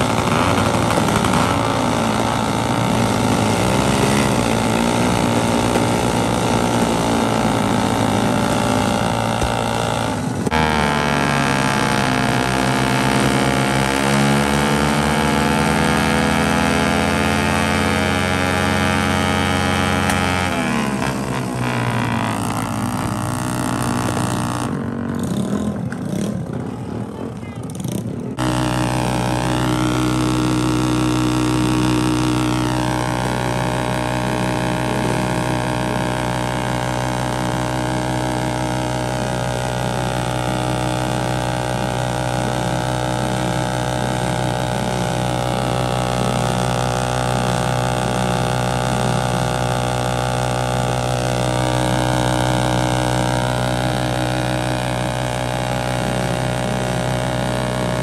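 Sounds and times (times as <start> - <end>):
tyre spinning on road: 0.0 - 18.0
motorcycle engine at high revs: 0.0 - 58.0.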